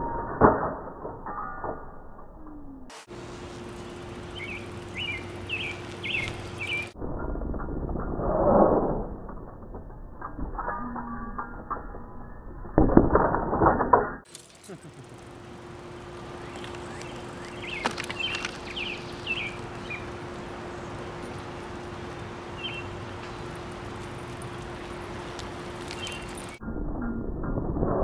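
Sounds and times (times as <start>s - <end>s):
bicycle wheel spinning: 2.4s - 12.8s, 14.2s - 26.6s
bird chirps: 3.8s - 7.0s, 16.3s - 23.8s, 24.4s - 26.6s.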